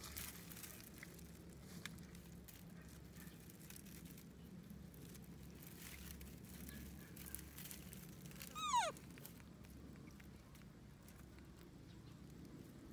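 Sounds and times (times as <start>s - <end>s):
rustling in dry grass: 0.0s - 12.9s
kitten mewing: 8.4s - 9.0s.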